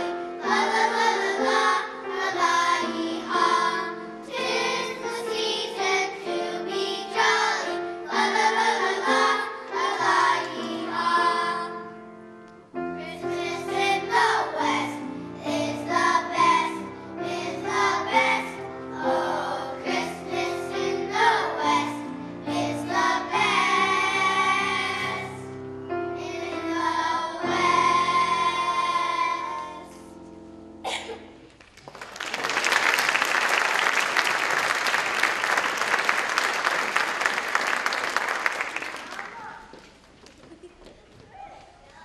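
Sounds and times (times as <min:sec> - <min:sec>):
children's choir singing: 0:00.0 - 0:12.2, 0:12.8 - 0:30.2
audience applause: 0:31.6 - 0:40.4.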